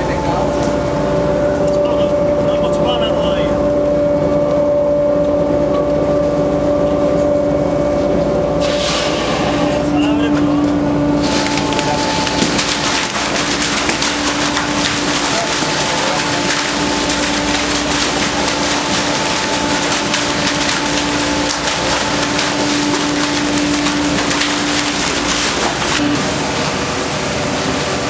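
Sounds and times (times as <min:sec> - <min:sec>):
pump machine hum: 0:00.0 - 0:28.0
water and fish splashing: 0:08.6 - 0:28.0.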